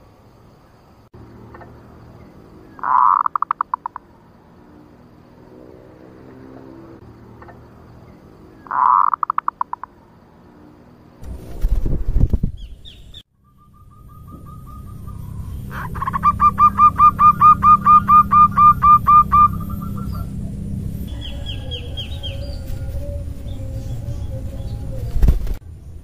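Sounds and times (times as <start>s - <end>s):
dove cooing: 2.8s - 4.0s, 8.6s - 9.9s, 14.1s - 25.2s
bird high falling notes: 13.4s - 22.7s.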